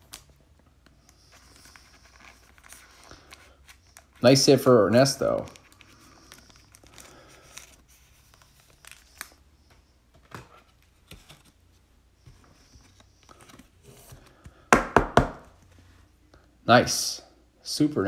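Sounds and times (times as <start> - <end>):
plastic sleeve rustling: 0.0 - 14.2.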